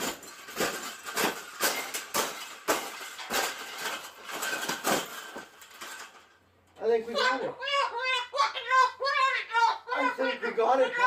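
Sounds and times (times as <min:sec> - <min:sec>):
metal wires crunching and rattling: 0:00.0 - 0:06.9.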